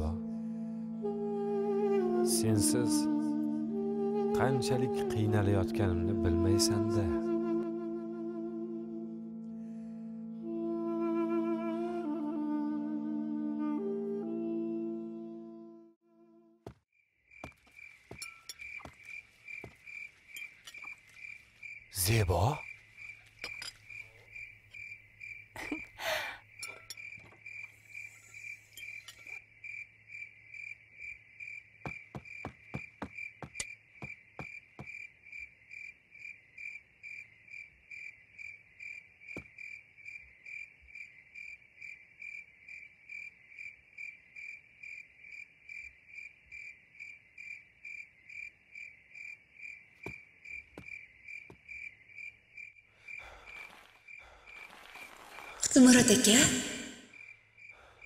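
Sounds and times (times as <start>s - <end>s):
crickets chirping: 17.2s - 58.0s.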